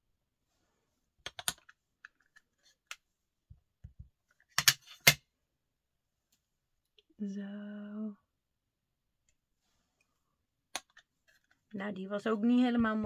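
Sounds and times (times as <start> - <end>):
plastic clicks and taps: 1.2 - 2.2.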